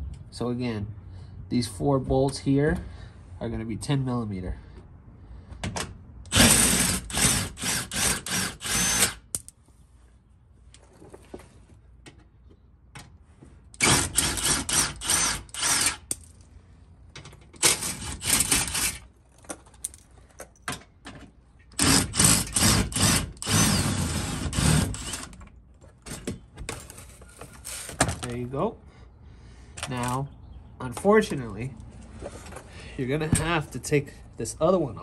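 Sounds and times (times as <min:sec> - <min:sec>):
cordless power driver spinning bolts: 0:13.8 - 0:16.2.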